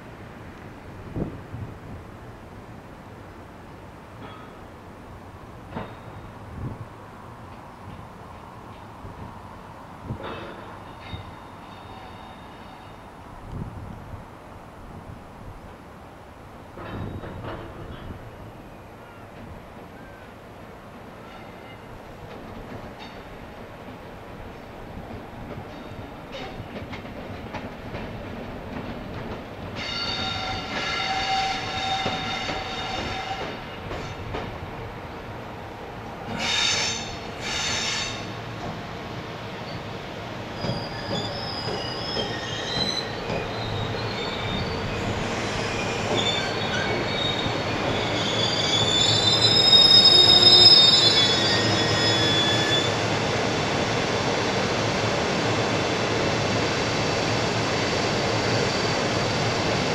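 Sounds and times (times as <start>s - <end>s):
train wheels squealing: 5.8s - 6.4s, 10.2s - 13.2s, 16.8s - 19.3s, 21.2s - 21.9s, 29.8s - 34.2s, 36.3s - 38.4s, 40.5s - 53.2s.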